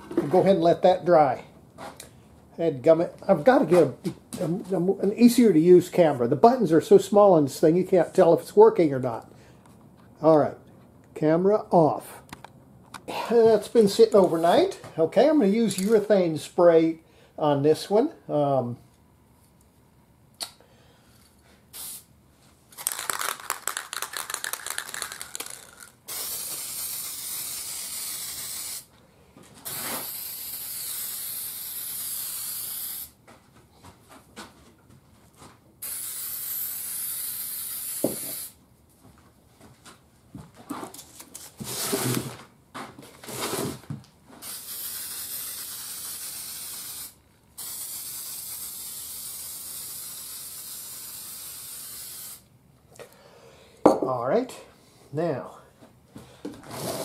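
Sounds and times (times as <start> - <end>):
aerosol spray can hissing: 21.8 - 22.1, 23.1 - 28.9, 29.7 - 33.2, 35.8 - 38.6, 44.4 - 52.4.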